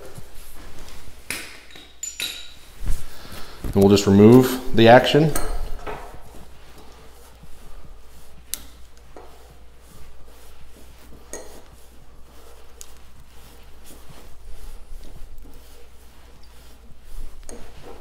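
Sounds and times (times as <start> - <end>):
metal tools clinking on workbench: 1.6 - 2.6.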